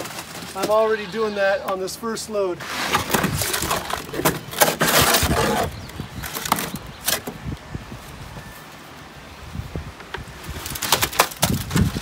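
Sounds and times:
concrete scraping in wheelbarrow: 0:00.0 - 0:01.8, 0:02.6 - 0:07.2.

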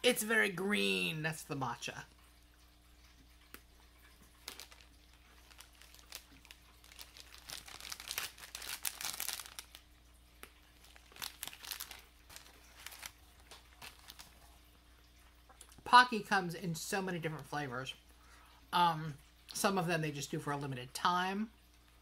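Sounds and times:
plastic wrapper crinkling and tearing: 0:04.2 - 0:14.6.

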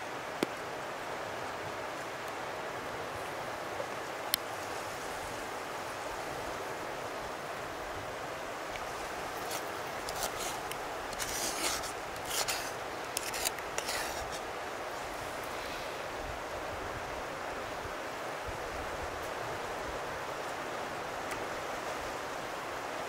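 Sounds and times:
short scraping strokes: 0:09.4 - 0:14.4.

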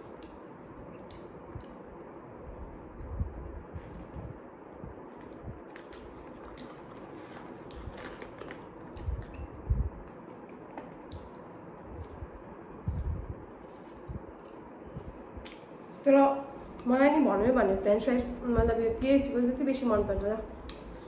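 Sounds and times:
paper box clicks and crinkles: 0:05.2 - 0:09.0
chewing: 0:05.7 - 0:07.9.

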